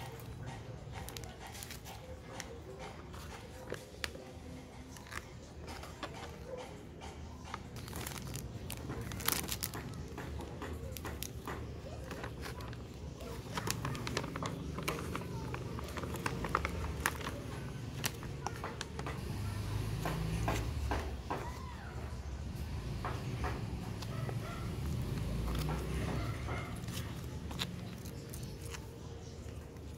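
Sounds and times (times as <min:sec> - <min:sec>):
plastic packaging crinkling: 0:07.5 - 0:19.2, 0:23.9 - 0:29.9.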